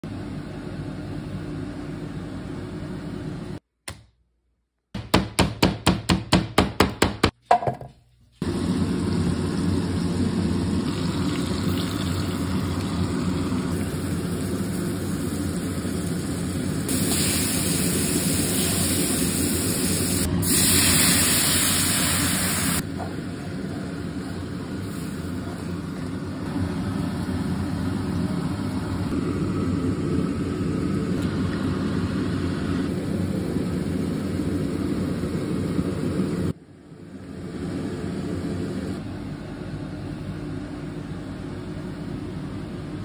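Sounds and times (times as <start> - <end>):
meat sizzling in oil: 9.0 - 22.8.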